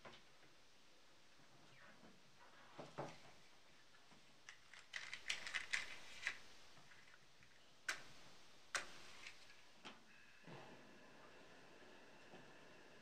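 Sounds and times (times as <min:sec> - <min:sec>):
matchbox clicks and rattles: 0:04.5 - 0:06.4.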